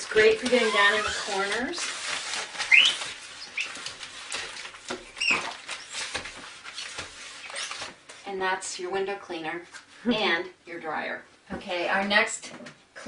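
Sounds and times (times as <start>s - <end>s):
newspaper rubbing on glass: 0.0s - 8.0s
paper squeaking on glass: 0.0s - 8.0s.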